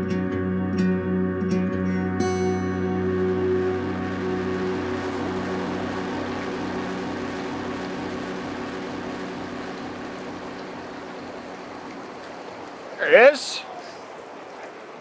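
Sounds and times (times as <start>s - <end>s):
ambient background music: 0.0s - 13.0s
stream rushing over falls: 3.2s - 15.0s.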